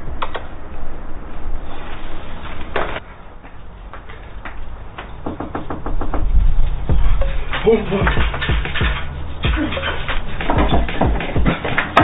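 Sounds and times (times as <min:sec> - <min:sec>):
knocking on a door: 0:05.2 - 0:06.3.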